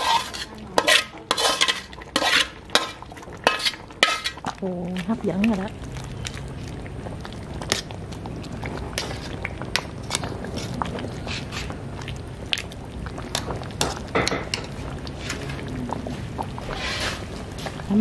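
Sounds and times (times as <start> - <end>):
metal ladle scraping pot: 0.0 - 4.5, 9.0 - 11.8, 16.6 - 17.3
thick porridge boiling and popping: 0.0 - 18.0.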